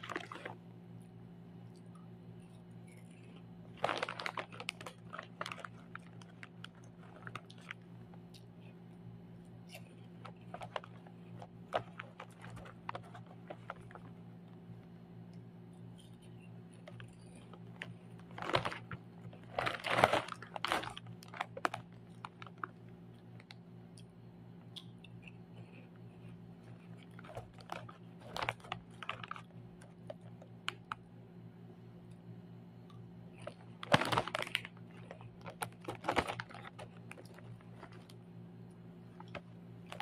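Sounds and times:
plastic bag crinkling: 0:00.0 - 0:00.6, 0:02.9 - 0:08.6, 0:09.7 - 0:14.2, 0:16.0 - 0:23.6, 0:26.2 - 0:31.0, 0:33.3 - 0:38.2, 0:39.1 - 0:40.0
faint steady hum: 0:00.0 - 0:40.0
sharp crunchy clicks: 0:01.7 - 0:31.1, 0:32.0 - 0:40.0.

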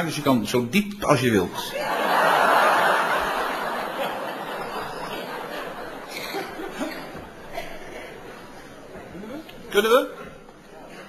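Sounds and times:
audience laughing: 0:01.7 - 0:08.3.

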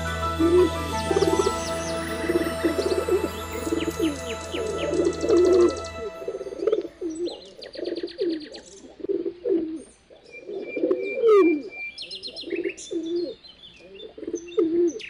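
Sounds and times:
bird chirps and trill: 0:00.0 - 0:08.8.

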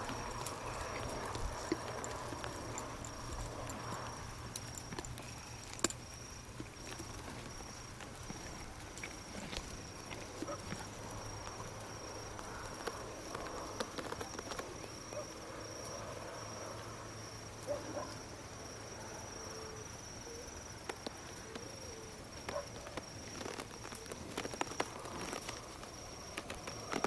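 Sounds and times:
horse hooves clicking: 0:00.0 - 0:15.3, 0:20.8 - 0:27.0
crickets trilling: 0:00.0 - 0:27.0.

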